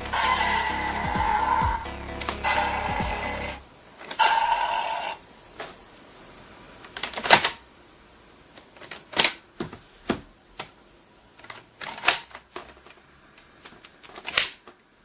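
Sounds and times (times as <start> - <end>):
plastic toy parts clicking: 11.4 - 13.0, 13.6 - 14.8.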